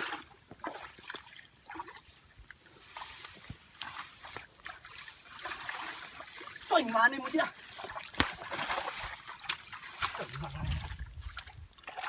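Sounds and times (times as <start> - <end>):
wet watery sounds: 0.0 - 12.0
grass rustling: 2.6 - 11.7.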